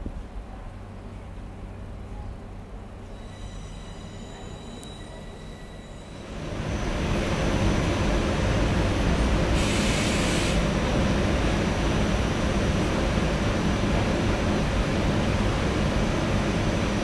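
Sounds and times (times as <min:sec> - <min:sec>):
train running on tracks: 0:00.0 - 0:17.0
hiss burst: 0:09.4 - 0:10.7.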